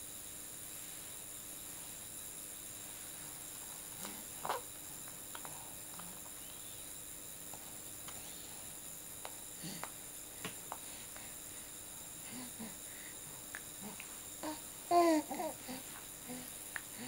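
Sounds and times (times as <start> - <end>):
steady hiss: 0.0 - 17.0
baby grunting softly: 13.8 - 17.0
baby vocal sound: 13.8 - 17.0.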